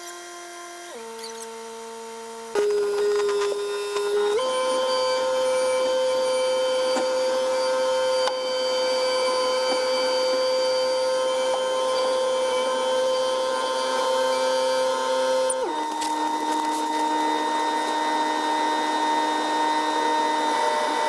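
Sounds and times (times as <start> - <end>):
high whine: 2.5 - 20.9.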